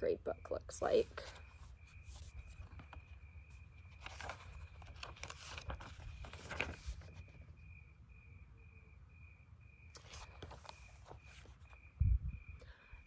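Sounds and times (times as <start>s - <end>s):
paper pages rustling: 1.1s - 7.6s, 9.9s - 11.8s.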